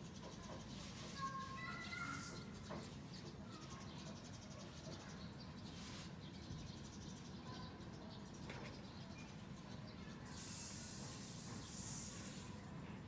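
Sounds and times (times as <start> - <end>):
faint high chirping: 0.0 - 10.7.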